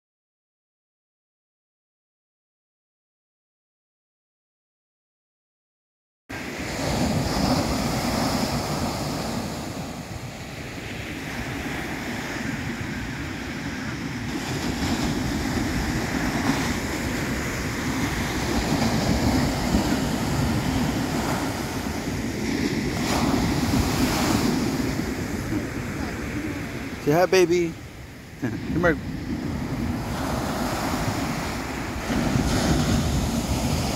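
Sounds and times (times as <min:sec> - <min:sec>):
ocean surf breaking: 0:06.3 - 0:33.9
wind rumbling on microphone: 0:06.6 - 0:33.9.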